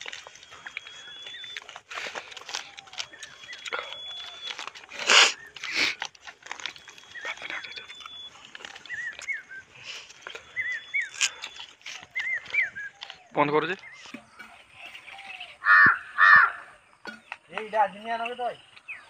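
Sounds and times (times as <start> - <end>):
person chewing with mouth smacks: 0.0 - 14.9
birds chirping: 0.0 - 19.0.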